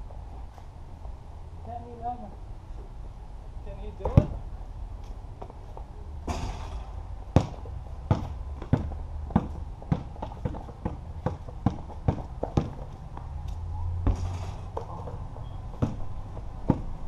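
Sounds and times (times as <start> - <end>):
basketball bouncing on concrete: 4.0 - 4.4, 7.3 - 13.3, 14.0 - 17.0.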